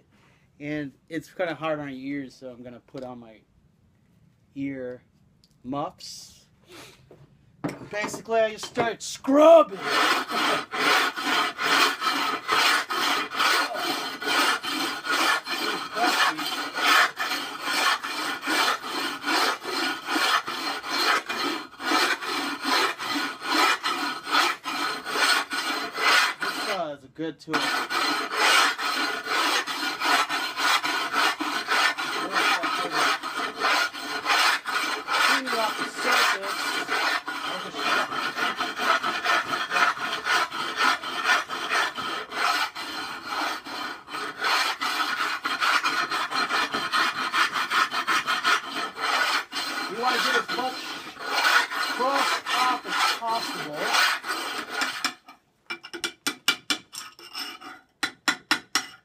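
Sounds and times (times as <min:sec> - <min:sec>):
stone scrubbing ceramic shelf: 0:09.7 - 0:26.8, 0:27.6 - 0:55.8
hammer and chisel taps: 0:54.9 - 0:57.0, 0:58.0 - 0:59.0.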